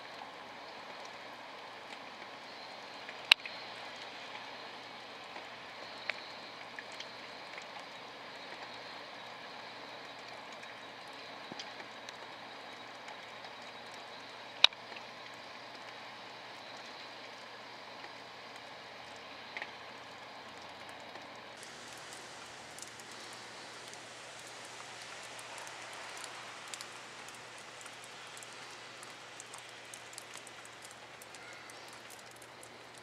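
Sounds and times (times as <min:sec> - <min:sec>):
steady rain falling: 0:00.0 - 0:33.0
sharp ticks: 0:21.8 - 0:33.0.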